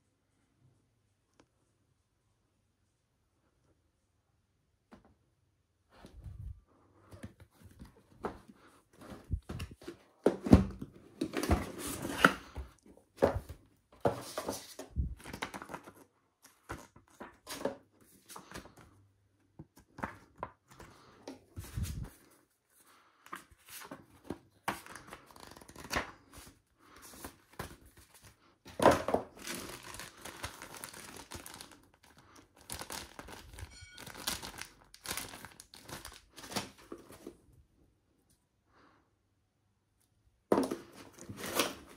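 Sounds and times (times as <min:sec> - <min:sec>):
plastic and cardboard crinkling: 0:07.0 - 0:18.9, 0:23.2 - 0:37.4, 0:40.5 - 0:41.9.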